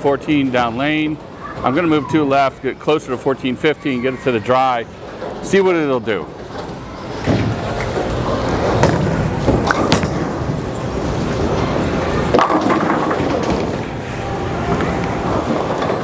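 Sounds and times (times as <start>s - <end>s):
bowling ball rolling down lane: 6.4s - 16.0s
bowling pins crashing: 6.6s - 10.8s, 12.2s - 14.0s, 14.7s - 16.0s.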